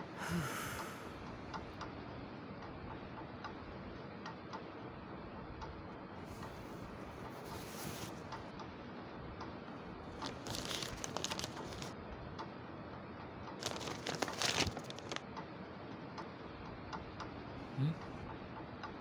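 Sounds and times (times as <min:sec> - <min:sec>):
newspaper pages rustling: 0:07.3 - 0:08.2, 0:10.1 - 0:11.9, 0:13.6 - 0:15.2.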